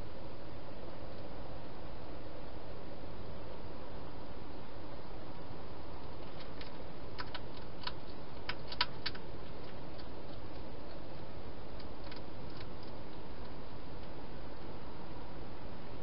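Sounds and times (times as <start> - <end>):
hedgehog eating clicks: 6.0 - 14.8.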